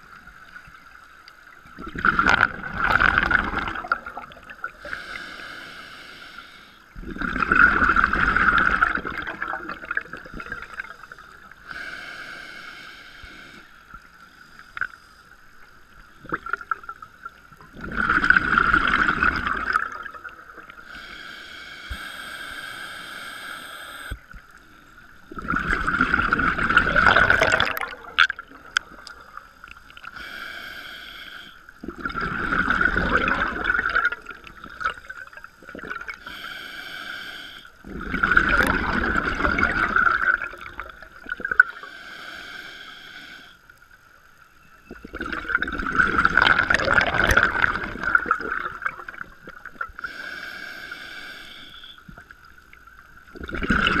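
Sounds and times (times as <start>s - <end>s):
bubbling regulator exhalations: 1.8s - 5.0s, 7.0s - 11.0s, 16.2s - 20.9s, 25.3s - 29.3s, 31.8s - 36.4s, 37.8s - 41.8s, 44.9s - 50.2s, 53.3s - 54.0s
hissing regulator inhalations: 4.8s - 6.9s, 10.7s - 15.4s, 20.7s - 24.4s, 28.9s - 31.8s, 36.1s - 38.0s, 41.6s - 43.8s, 49.9s - 52.3s.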